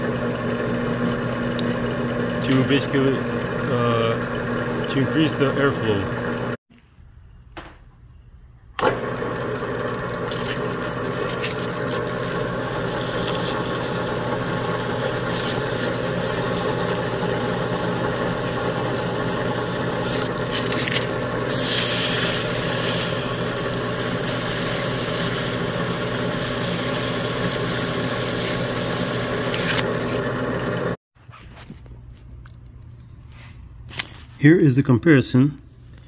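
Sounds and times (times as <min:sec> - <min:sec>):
drill press motor running: 0:00.0 - 0:06.6, 0:08.8 - 0:31.0
sandpaper scraping hiss: 0:10.3 - 0:29.9.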